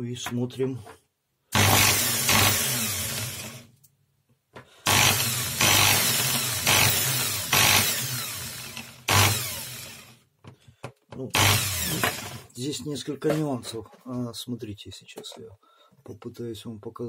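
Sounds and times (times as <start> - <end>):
electric drill motor running: 1.6 - 3.7, 4.9 - 10.2, 11.3 - 12.5.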